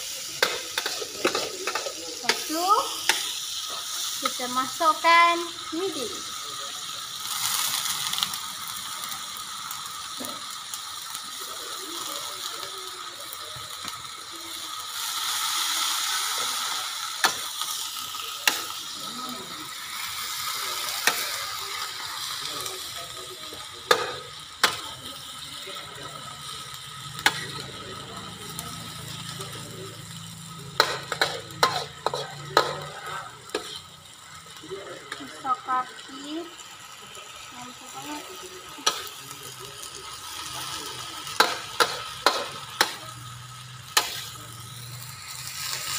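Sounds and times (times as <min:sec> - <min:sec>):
vegetables sizzling in a wok: 0:00.0 - 0:45.9
metal spatula scraping wok: 0:30.8 - 0:34.0.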